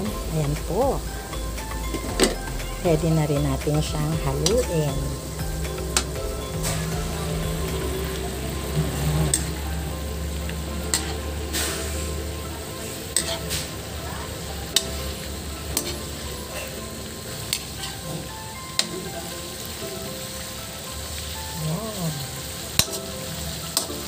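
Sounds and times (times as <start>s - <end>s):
food sizzling in a wok: 0.0s - 24.0s
metal spatula clicking on pan: 13.2s - 13.4s.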